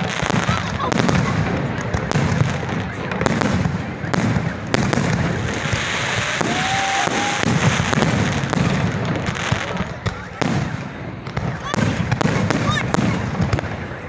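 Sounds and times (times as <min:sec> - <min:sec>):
fireworks bangs: 0:00.0 - 0:14.0
fireworks crackling: 0:00.0 - 0:14.0
firework whistle: 0:05.3 - 0:13.3.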